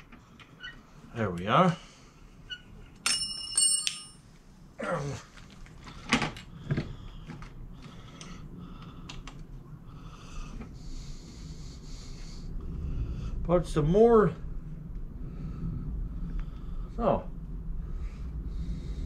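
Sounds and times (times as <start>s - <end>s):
bright metallic ring: 3.0s - 4.2s.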